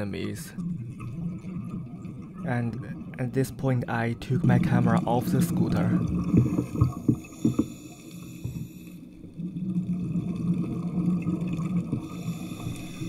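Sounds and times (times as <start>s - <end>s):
underwater motor hum: 0.0s - 13.0s.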